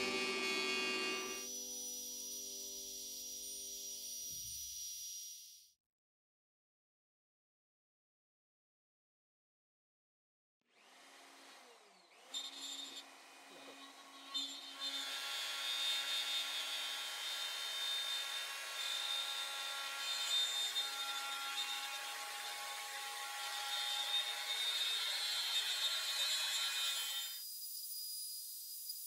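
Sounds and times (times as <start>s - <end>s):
router bit rasping in wood: 0.0s - 1.5s, 10.8s - 27.4s
router motor whine: 0.0s - 5.6s, 10.7s - 27.4s.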